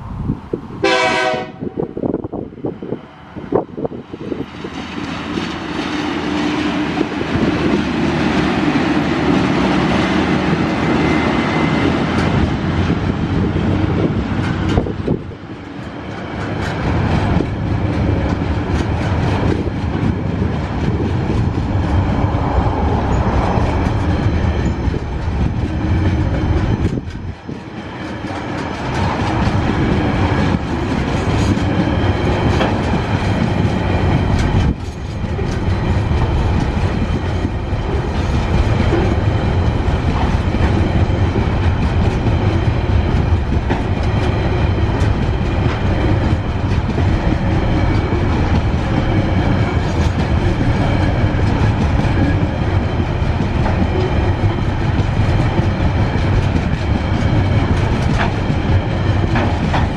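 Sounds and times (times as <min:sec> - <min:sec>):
diesel locomotive engines humming: 0:00.0 - 0:59.9
train wheels clattering over joints: 0:13.9 - 0:59.9.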